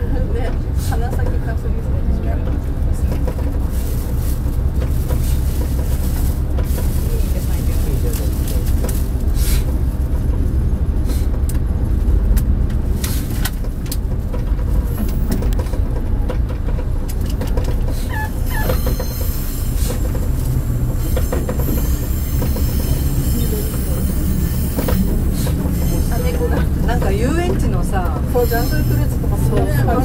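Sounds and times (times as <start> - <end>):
railcar engine and wheels rumbling: 0.0 - 30.0
rail clicks: 0.4 - 30.0
wheel squeal: 17.9 - 27.1, 28.3 - 29.5.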